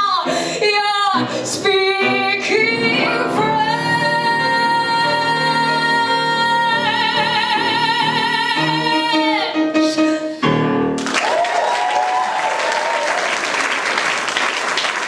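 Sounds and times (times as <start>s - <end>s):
woman singing with vibrato: 0.0s - 10.2s
audience applauding: 11.0s - 15.0s.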